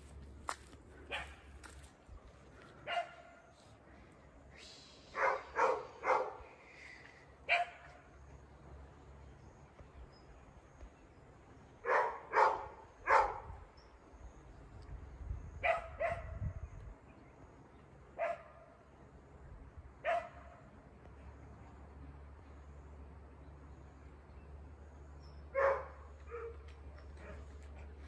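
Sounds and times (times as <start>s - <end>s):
dog barking: 1.1s - 1.4s, 2.8s - 3.6s, 5.2s - 6.4s, 7.5s - 7.9s, 11.8s - 13.5s, 15.6s - 16.4s, 18.2s - 18.6s, 20.0s - 20.6s, 25.6s - 26.6s.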